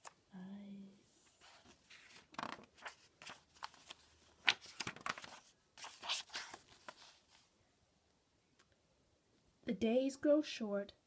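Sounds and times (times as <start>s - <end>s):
book pages rustling: 1.2s - 7.5s.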